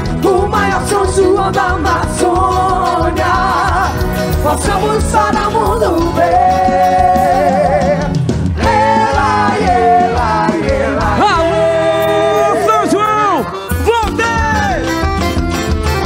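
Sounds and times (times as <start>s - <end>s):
band accompaniment: 0.0s - 16.0s.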